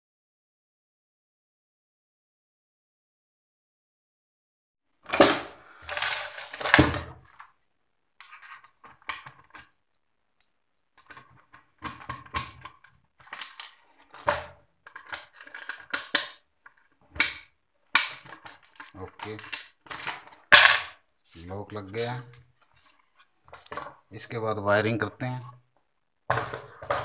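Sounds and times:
wooden box clattering and knocking: 5.1s - 7.4s, 11.0s - 16.4s, 23.5s - 24.0s, 26.3s - 27.0s.

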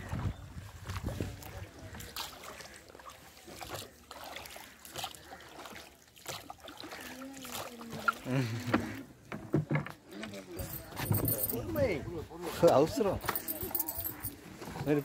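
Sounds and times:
water sloshing around rowboat: 0.0s - 15.0s.

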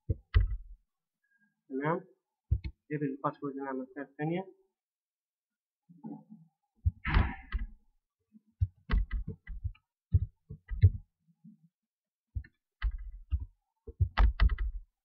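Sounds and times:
keyboard keys clicking: 12.4s - 14.8s.

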